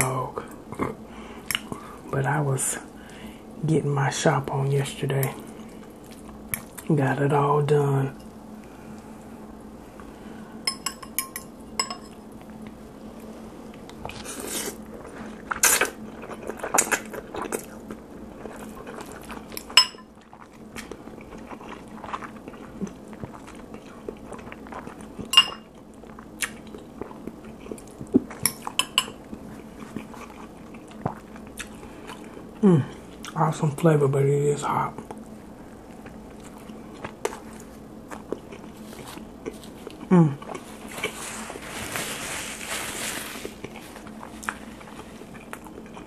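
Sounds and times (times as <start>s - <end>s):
fork clinking on glass bowl: 10.7s - 12.2s, 25.3s - 25.6s
chewing: 13.7s - 33.4s, 35.0s - 42.0s, 43.0s - 46.0s.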